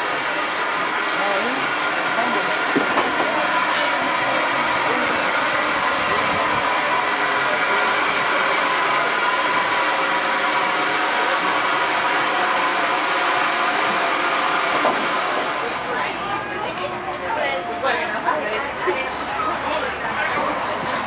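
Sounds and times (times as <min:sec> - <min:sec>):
steam locomotive hissing: 0:00.0 - 0:16.6.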